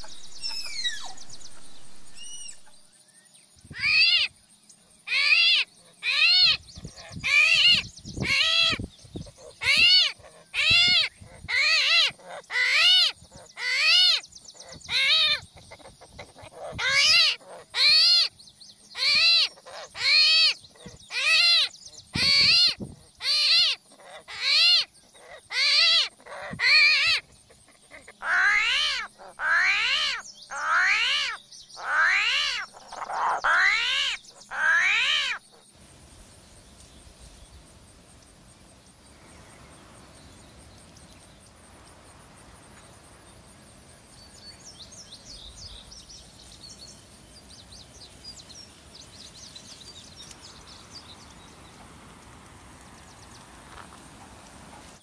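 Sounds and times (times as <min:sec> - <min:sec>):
loud animal calls: 0:00.0 - 0:02.9, 0:03.7 - 0:04.3, 0:09.4 - 0:18.3, 0:19.0 - 0:35.7
faint hiss: 0:35.7 - 0:55.0.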